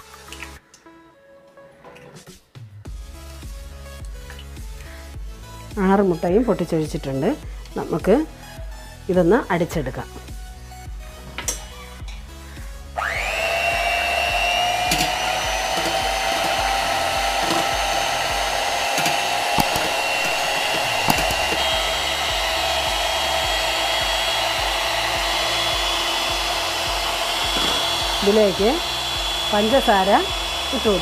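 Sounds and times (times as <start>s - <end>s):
electric hand mixer whining: 12.8s - 31.0s
beaters whisking in steel bowl: 13.8s - 31.0s.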